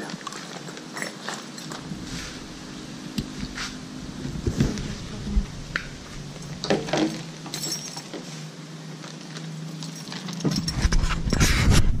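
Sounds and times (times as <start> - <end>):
rustling: 0.0 - 12.0
wind on microphone: 1.8 - 6.4, 10.7 - 12.0.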